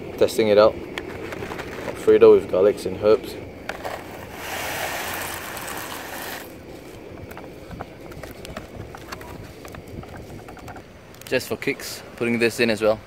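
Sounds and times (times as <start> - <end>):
plastic packet crinkling: 3.8 - 6.5.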